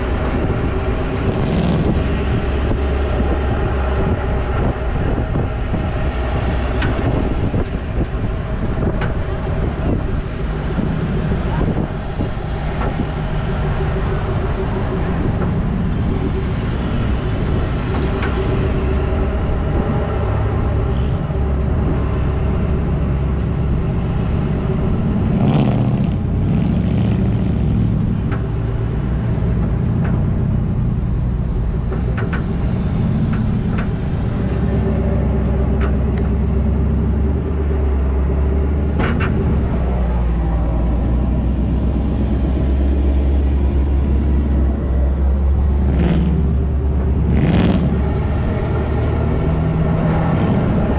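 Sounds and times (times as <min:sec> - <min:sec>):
truck engine low rumble: 0:00.0 - 0:50.9.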